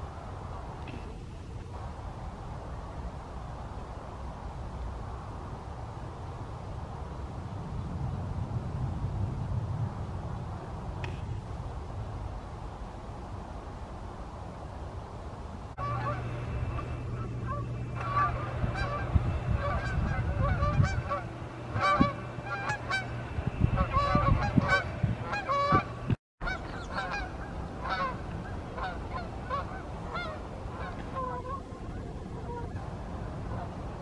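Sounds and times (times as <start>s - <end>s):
low steady hum: 0.0s - 34.0s
geese honking in flight: 15.8s - 34.0s.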